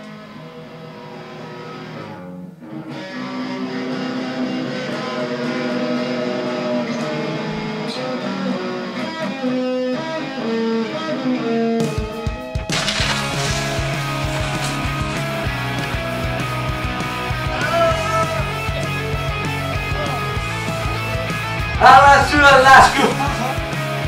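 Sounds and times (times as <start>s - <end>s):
electric guitar melody: 0.0s - 21.8s.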